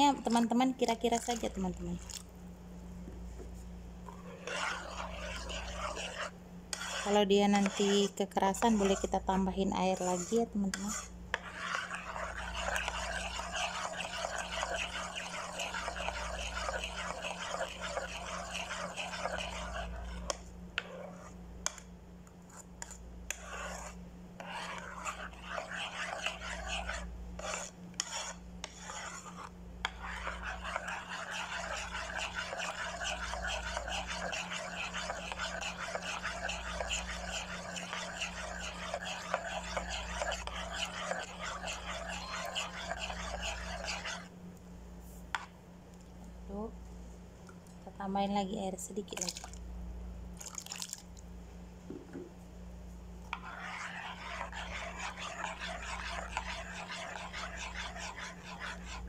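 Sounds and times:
whisk scraping saucepan bottom: 0:04.1 - 0:21.8, 0:22.5 - 0:44.3, 0:53.3 - 0:59.0.

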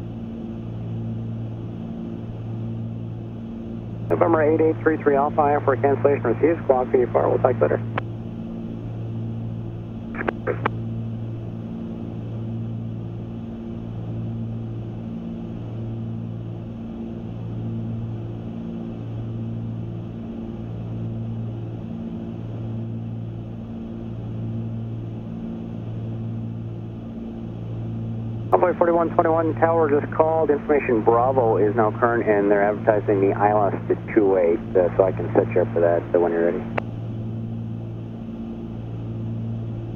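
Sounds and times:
propeller plane engines droning: 0:00.0 - 0:39.9.

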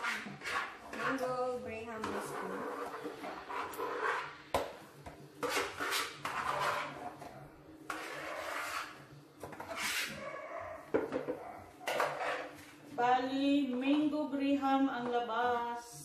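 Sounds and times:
spoon scraping plastic bowl: 0:00.0 - 0:04.5, 0:05.4 - 0:10.4, 0:11.0 - 0:12.8.

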